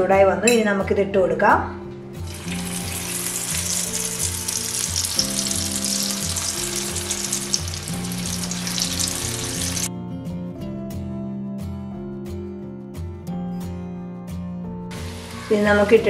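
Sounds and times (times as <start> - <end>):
background music: 0.0 - 16.0
beef sizzling in hot oil: 2.2 - 9.9, 14.9 - 15.6.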